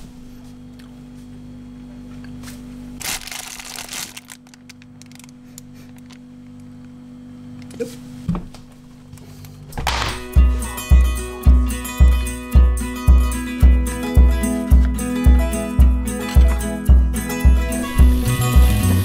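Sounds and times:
refrigerator humming: 0.0 - 19.0
food rustling: 3.0 - 5.9.

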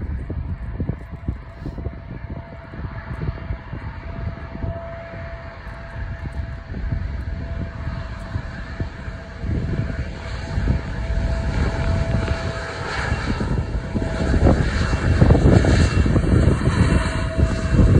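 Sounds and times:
jet engines rumbling and whining: 0.0 - 17.9.

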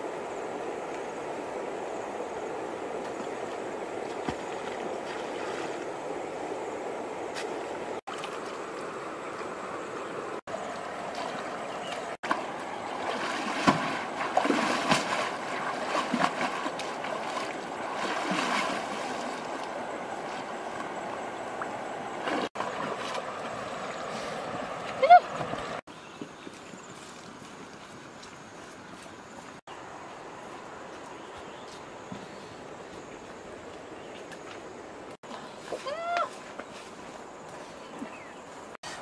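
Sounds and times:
river water rushing: 0.0 - 25.8
basket splashing in water: 11.1 - 19.7.

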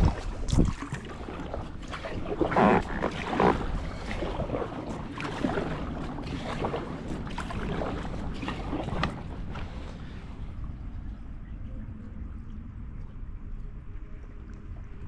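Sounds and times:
paddle strokes splashing: 0.0 - 10.7
wind rumble on microphone: 0.0 - 15.0.

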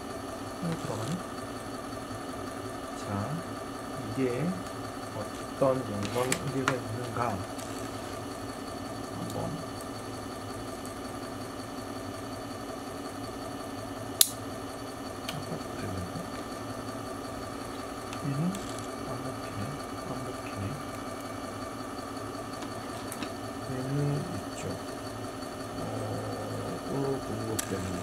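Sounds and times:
small motor humming: 0.0 - 28.0
sharp click: 14.2 - 14.4.

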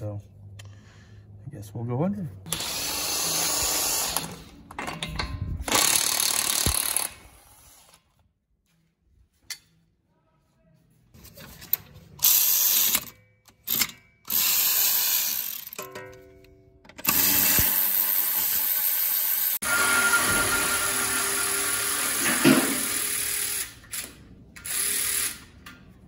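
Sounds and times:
cordless impact wrench: 2.5 - 5.0, 5.6 - 8.0, 12.2 - 15.8, 17.0 - 25.7
cordless ratchet spinning bolt: 5.7 - 7.2, 17.0 - 19.6.

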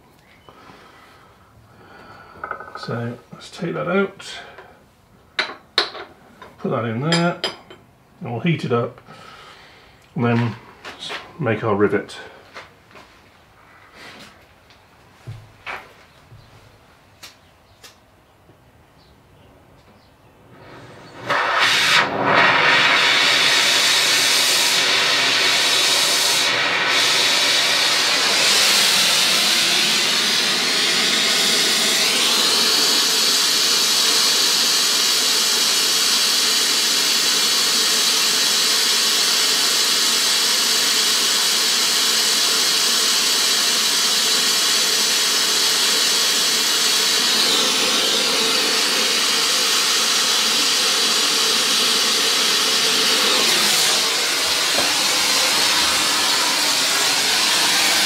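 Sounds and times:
gas torch flame hissing: 20.5 - 58.0.

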